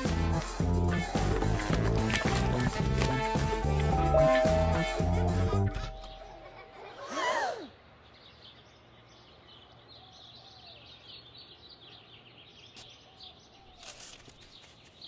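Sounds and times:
outdoor background noise: 0:00.0 - 0:15.0
small birds chirping: 0:07.7 - 0:15.0.

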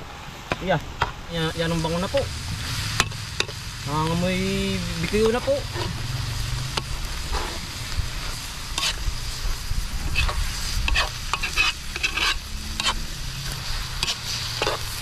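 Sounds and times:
food sizzling: 0:00.0 - 0:15.0
steady low rumble: 0:00.0 - 0:15.0
metal ladle scraping wok: 0:05.6 - 0:09.3, 0:10.0 - 0:15.0.

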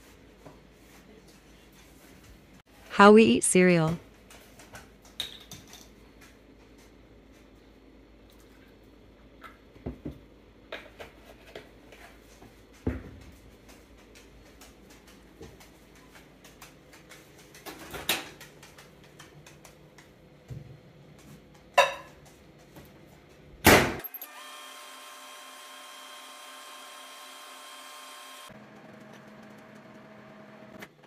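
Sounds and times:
microwave oven humming: 0:19.6 - 0:31.0.

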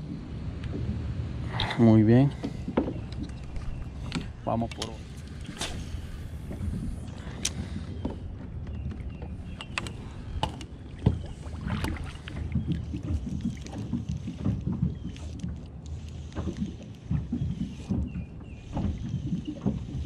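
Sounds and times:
wind buffeting microphone: 0:00.0 - 0:15.2
water against plastic kayak: 0:00.0 - 0:20.0.

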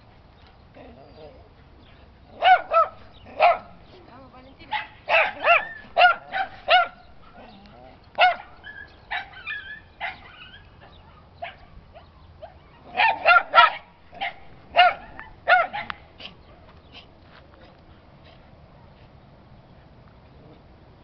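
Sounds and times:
dog barking: 0:02.4 - 0:03.8, 0:04.7 - 0:07.6, 0:08.2 - 0:16.0.

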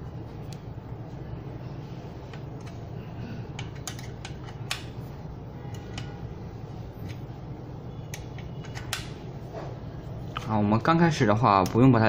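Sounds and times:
hex key clicking on bolts: 0:03.6 - 0:05.0.

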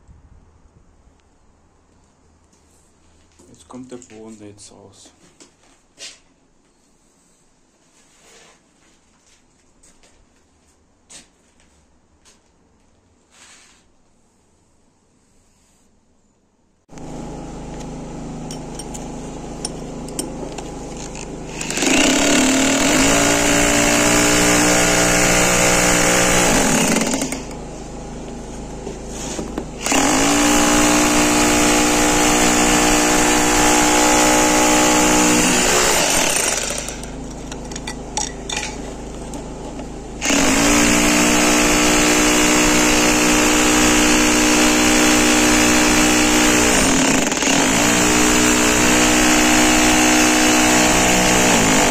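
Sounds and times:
demolition hammer breaking tiles: 0:21.6 - 0:27.6.

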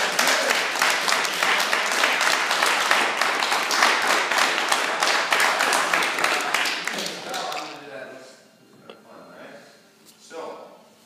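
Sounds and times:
people clapping and applauding: 0:00.0 - 0:07.8.

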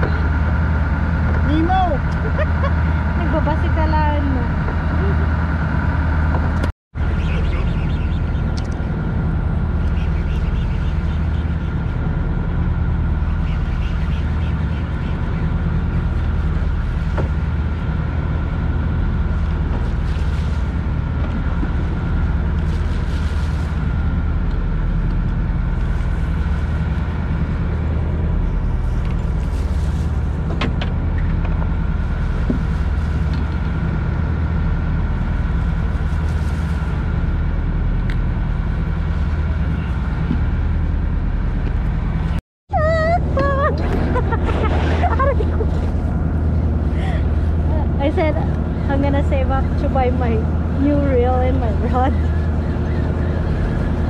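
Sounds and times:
boat engine droning: 0:00.0 - 0:54.0.

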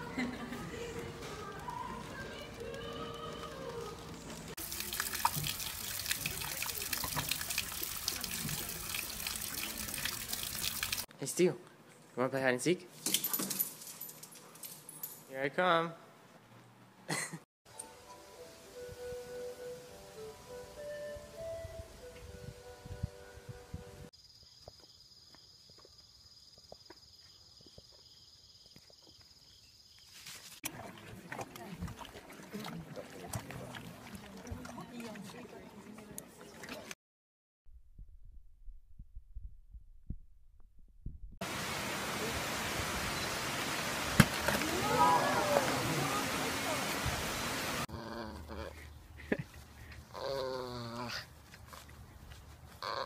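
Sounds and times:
water trickling and splashing on stone: 0:04.6 - 0:11.1, 0:30.6 - 0:36.9, 0:41.4 - 0:47.9.

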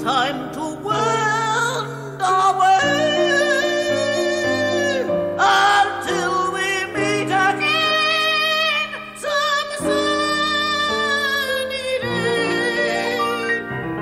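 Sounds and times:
instrumental accompaniment: 0:00.0 - 0:14.0
person singing with vibrato: 0:00.0 - 0:14.0.

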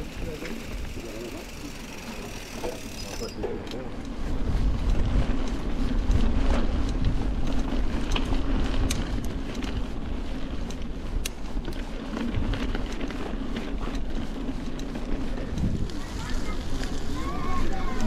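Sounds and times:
bike clicking and rattling: 0:00.0 - 0:18.0
wind buffeting microphone: 0:03.4 - 0:18.0
tyres rumbling on dirt: 0:11.6 - 0:18.0.

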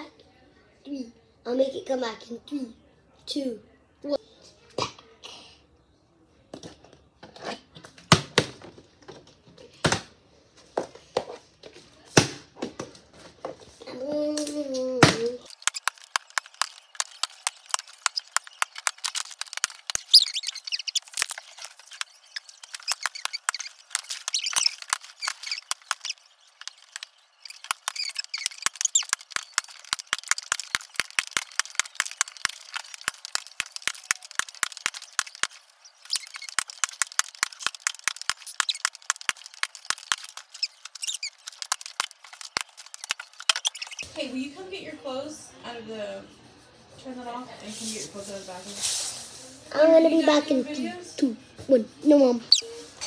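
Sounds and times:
rapid sharp clicks: 0:15.5 - 0:44.0
faint high squeaks: 0:16.6 - 0:44.2, 0:52.5 - 0:53.0.

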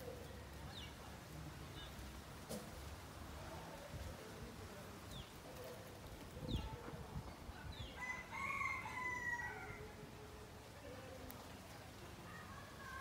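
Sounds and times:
small birds chirping: 0:00.0 - 0:02.3, 0:04.1 - 0:08.2
rooster crowing: 0:08.0 - 0:09.9.

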